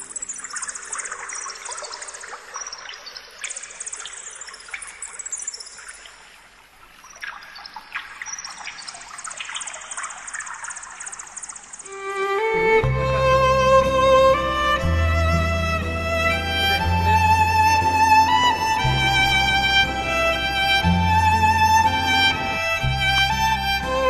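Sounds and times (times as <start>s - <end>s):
water trickling and splashing: 0.0s - 12.4s
violin music: 11.9s - 24.0s.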